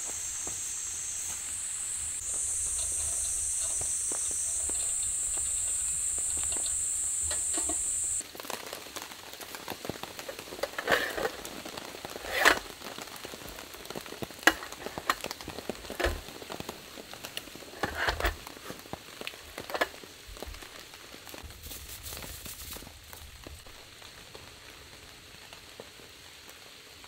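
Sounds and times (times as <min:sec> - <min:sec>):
insects trilling: 0:00.0 - 0:08.2
crackling with sharp pops: 0:00.0 - 0:24.5.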